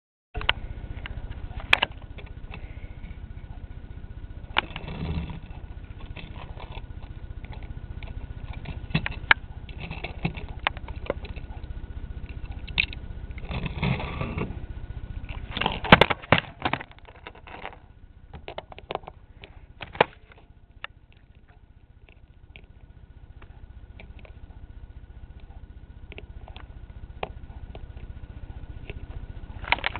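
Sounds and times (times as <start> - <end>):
low rumble: 0.4 - 29.9.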